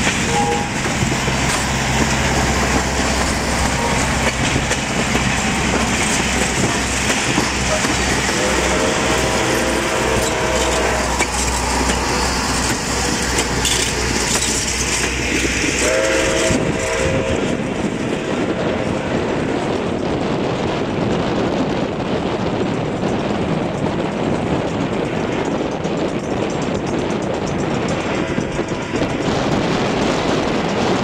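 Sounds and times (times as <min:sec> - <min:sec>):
train wheels clattering on rails: 0:00.0 - 0:31.0
steam locomotive chime whistle: 0:00.2 - 0:01.0, 0:07.7 - 0:13.9, 0:15.7 - 0:17.6.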